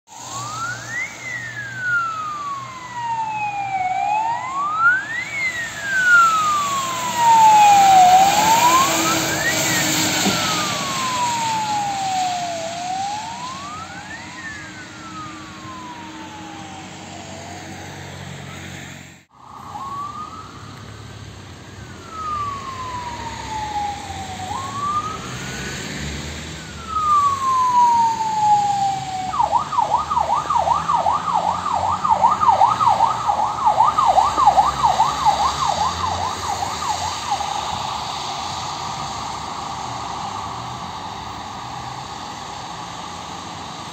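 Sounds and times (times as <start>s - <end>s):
fire engine siren wailing: 0.1s - 43.9s
fire truck passing: 0.1s - 43.9s.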